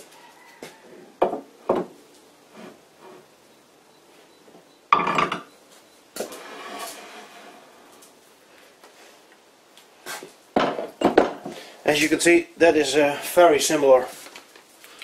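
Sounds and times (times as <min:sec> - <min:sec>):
metal scraping on metal: 0:06.2 - 0:08.0.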